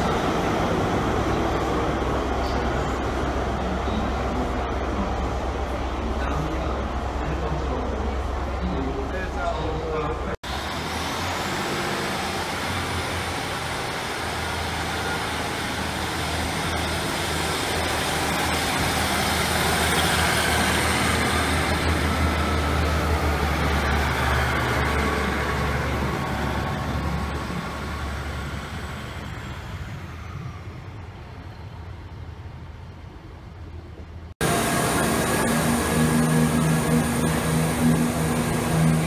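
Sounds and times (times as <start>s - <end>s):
train high whine: 0.0s - 32.5s, 33.9s - 39.0s
diesel train engine drone: 0.0s - 39.0s.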